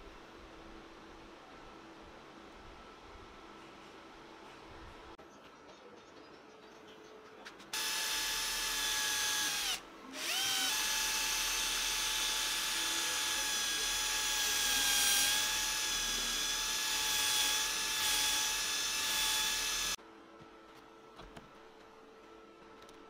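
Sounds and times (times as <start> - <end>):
electric drill whining: 7.8 - 20.0.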